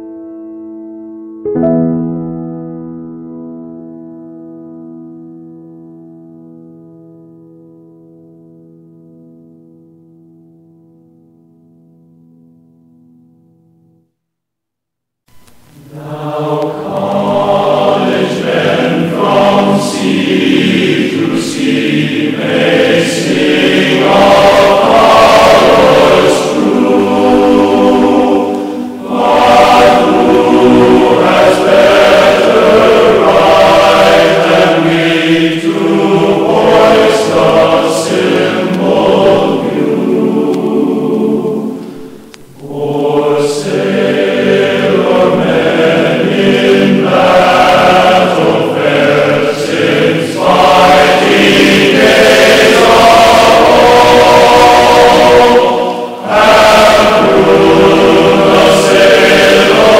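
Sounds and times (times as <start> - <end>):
choir singing held chords: 15.4 - 59.9.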